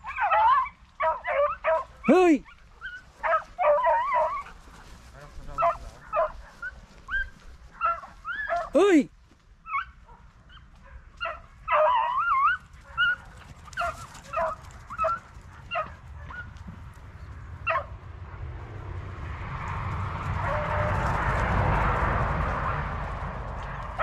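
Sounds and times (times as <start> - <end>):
hounds yipping and baying: 0.0 - 8.8, 9.6 - 16.8, 17.6 - 18.0, 20.4 - 21.4.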